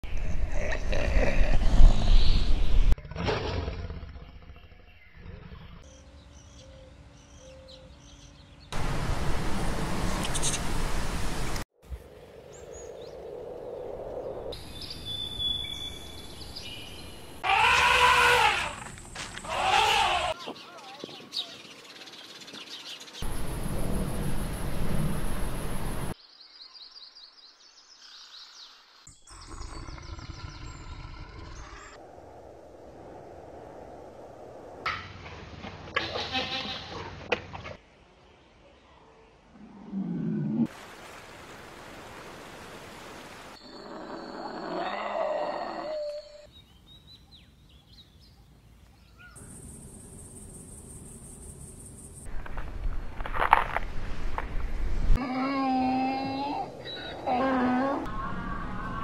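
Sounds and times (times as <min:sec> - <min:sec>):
small birds chirping: 0:04.3 - 0:08.8, 0:14.2 - 0:17.4, 0:19.4 - 0:23.5, 0:45.9 - 0:52.3.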